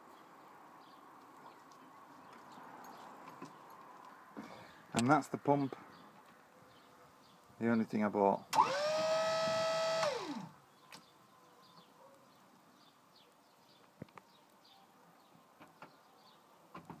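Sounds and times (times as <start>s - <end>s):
hydraulic pump motor whining: 8.6s - 10.5s.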